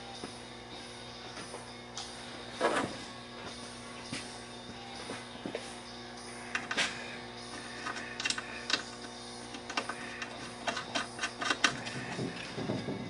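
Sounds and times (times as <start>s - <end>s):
faint hum: 0.0s - 13.0s
clicks and knocks of metal hardware: 9.6s - 13.0s.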